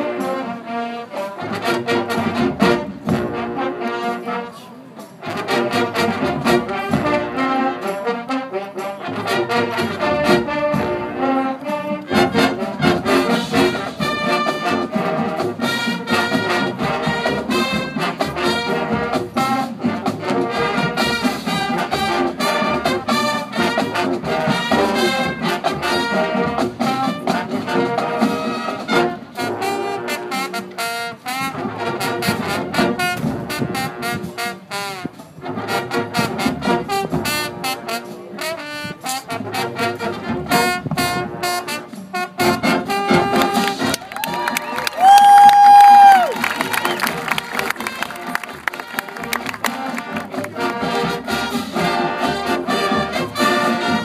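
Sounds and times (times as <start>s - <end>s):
marching band playing: 0.0s - 54.0s.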